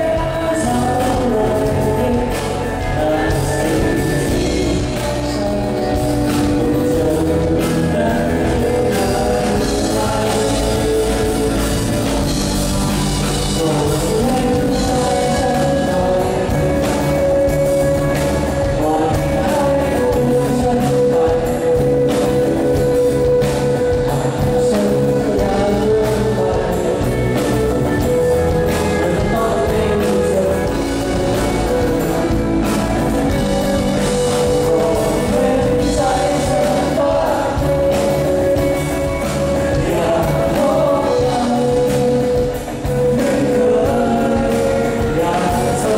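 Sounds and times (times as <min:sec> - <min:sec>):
acoustic guitar: 0:00.0 - 0:45.9
drums: 0:00.0 - 0:45.9
electric guitar: 0:00.0 - 0:45.9
man singing: 0:00.0 - 0:45.9.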